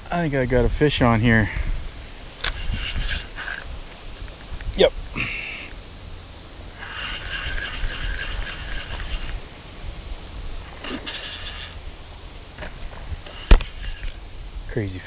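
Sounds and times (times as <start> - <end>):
fishing reel drag buzzing: 2.4 - 4.2, 6.7 - 9.4, 10.6 - 11.8, 13.2 - 14.2.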